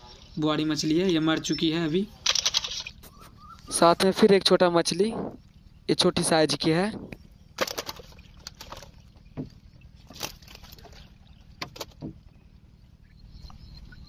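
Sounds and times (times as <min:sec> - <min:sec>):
faint low hum: 0:00.0 - 0:14.0
fishing net clicks and rustles: 0:02.1 - 0:03.0, 0:07.5 - 0:12.2.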